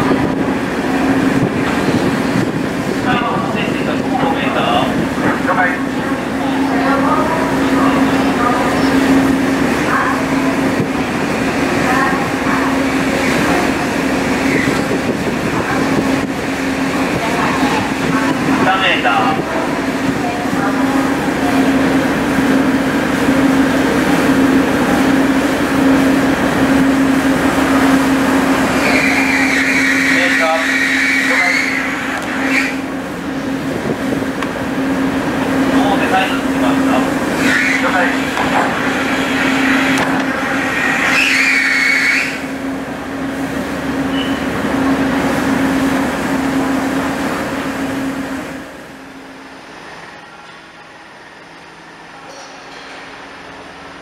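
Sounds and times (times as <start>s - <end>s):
ship machinery droning: 0.0s - 54.0s
brief high squeal: 41.0s - 42.5s, 44.1s - 44.5s.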